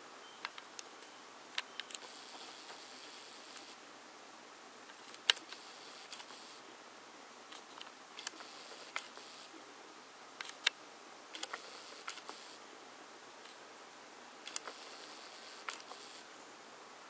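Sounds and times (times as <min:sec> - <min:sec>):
faint high lens whir: 0:00.0 - 0:17.0
faint hiss: 0:00.0 - 0:17.0
camera handling noise: 0:01.6 - 0:03.8, 0:04.9 - 0:06.6, 0:07.5 - 0:09.4, 0:10.4 - 0:12.5, 0:14.5 - 0:16.2
camera lens clicks and ticks: 0:01.6 - 0:03.8, 0:04.9 - 0:06.6, 0:07.5 - 0:09.5, 0:10.4 - 0:12.6, 0:14.5 - 0:16.2.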